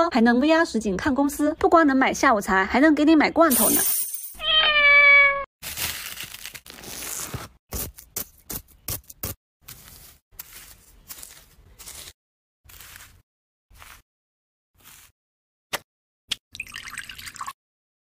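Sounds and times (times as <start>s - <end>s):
cat meowing: 4.4s - 5.5s
fork scraping and crunching ice: 5.7s - 14.0s, 14.8s - 15.1s.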